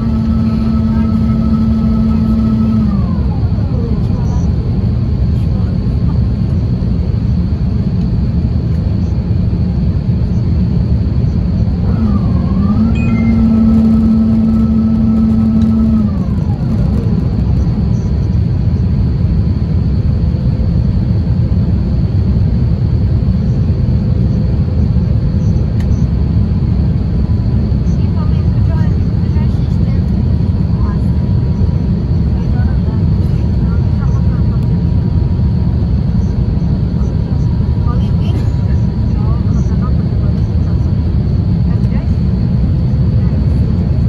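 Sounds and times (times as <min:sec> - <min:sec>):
airliner cabin rumble: 0:00.0 - 0:44.0
mechanical whine: 0:00.0 - 0:44.0.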